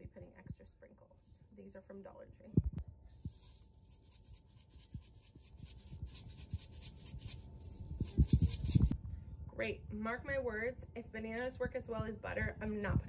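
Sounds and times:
sprinkles rattling in a shaker: 0:03.2 - 0:08.9.

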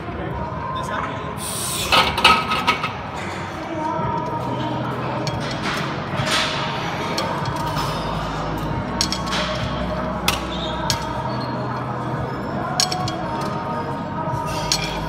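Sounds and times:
background music: 0:00.0 - 0:15.0
metal weights clinking: 0:09.0 - 0:11.2, 0:12.6 - 0:13.6.

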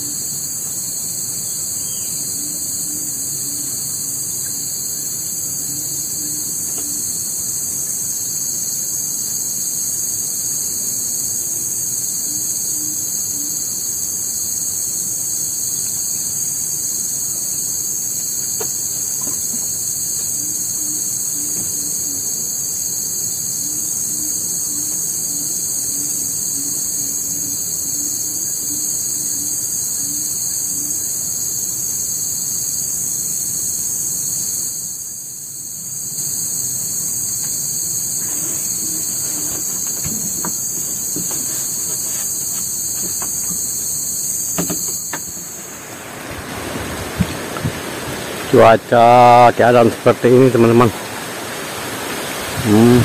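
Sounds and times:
insects shrilling: 0:00.0 - 0:53.0.

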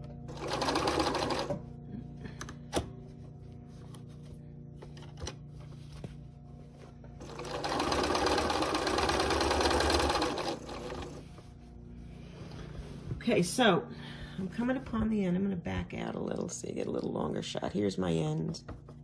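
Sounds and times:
sewing machine stitching: 0:00.3 - 0:01.6, 0:07.2 - 0:11.2.

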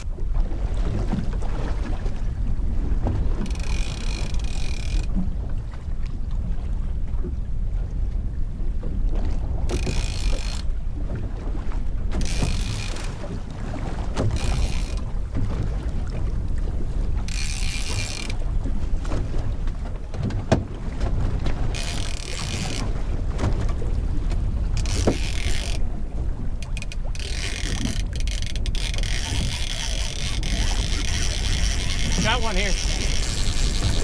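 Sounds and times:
low rumble of wind and boat: 0:00.0 - 0:34.0
fishing reel whirring: 0:03.3 - 0:05.2, 0:09.7 - 0:10.7, 0:12.2 - 0:13.2, 0:14.2 - 0:15.1, 0:17.2 - 0:18.4, 0:21.7 - 0:23.0, 0:24.7 - 0:25.8, 0:26.6 - 0:34.0.

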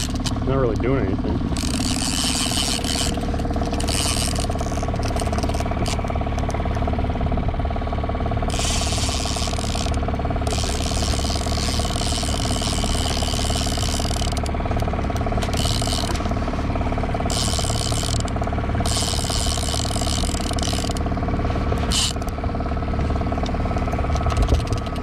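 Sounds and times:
fishing reel ratcheting: 0:00.0 - 0:06.8, 0:08.5 - 0:21.2, 0:21.8 - 0:22.4, 0:24.0 - 0:25.0
boat engine humming: 0:00.0 - 0:25.0.

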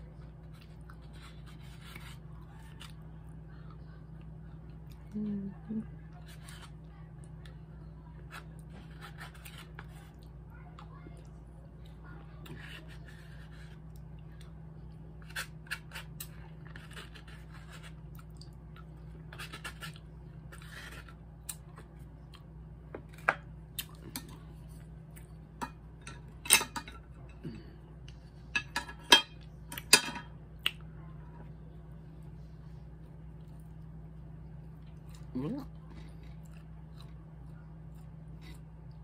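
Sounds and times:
chewing and mouth sounds: 0:13.9 - 0:22.6, 0:23.7 - 0:25.4, 0:30.6 - 0:30.9, 0:34.6 - 0:39.0.

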